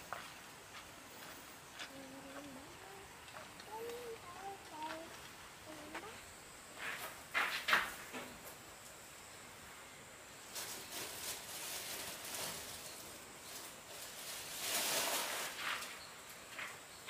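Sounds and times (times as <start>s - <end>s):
plastic bag rustling: 10.4s - 16.7s.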